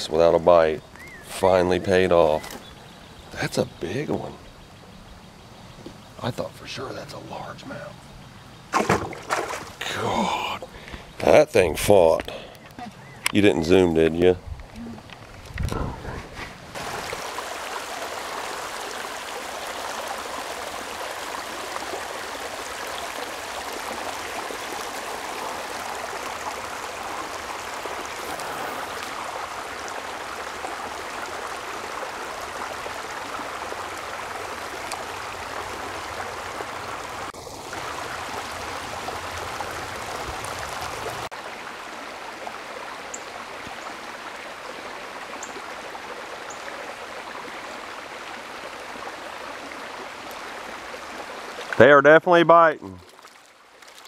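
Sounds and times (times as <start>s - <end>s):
creek water rushing: 0.0s - 14.3s, 15.0s - 54.0s.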